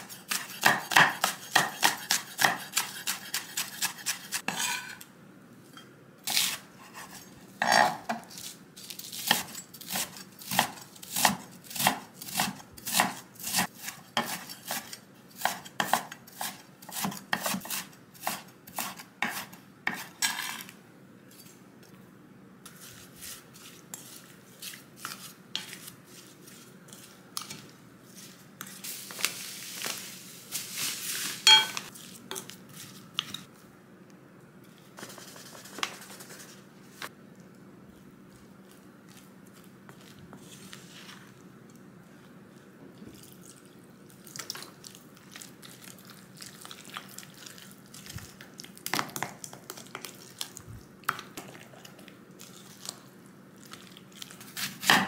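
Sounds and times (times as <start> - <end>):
knife chopping on wooden board: 0.3 - 4.1, 15.4 - 20.1.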